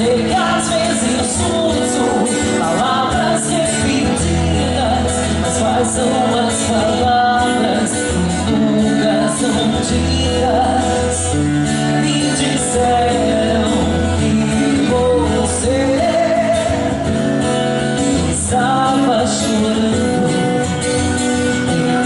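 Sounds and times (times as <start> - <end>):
woman singing: 0.0 - 11.4, 12.0 - 16.9
live band with drum kit: 0.0 - 22.0.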